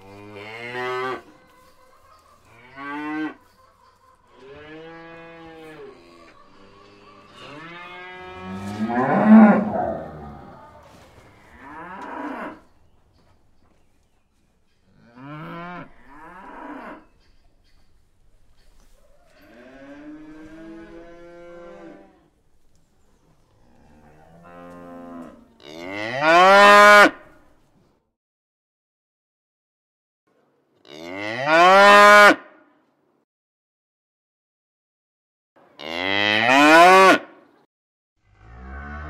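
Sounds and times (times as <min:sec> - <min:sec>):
cows mooing: 0:04.4 - 0:12.6.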